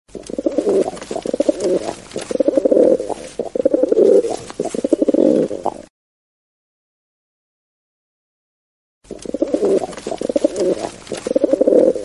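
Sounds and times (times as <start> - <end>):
pigeon cooing: 0.1 - 5.9, 9.1 - 12.0.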